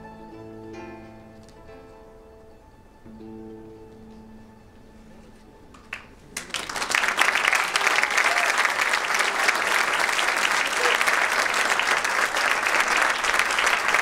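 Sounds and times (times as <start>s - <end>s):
audience applauding: 5.8s - 14.0s.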